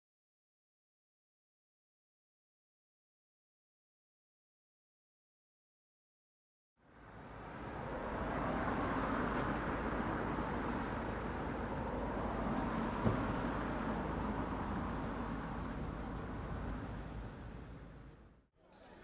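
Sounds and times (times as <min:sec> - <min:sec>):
traffic noise: 0:06.8 - 0:19.0.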